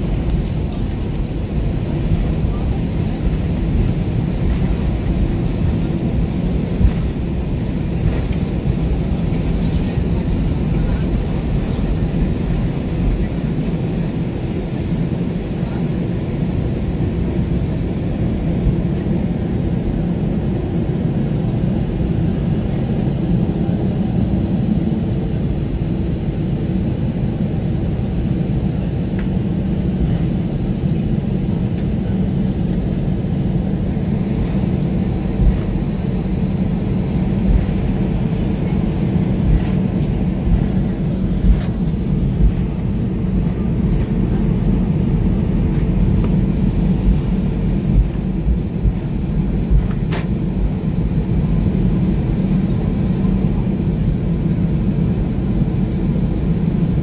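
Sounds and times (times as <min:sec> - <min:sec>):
low rumble of aircraft taxiing: 0:00.0 - 0:57.0.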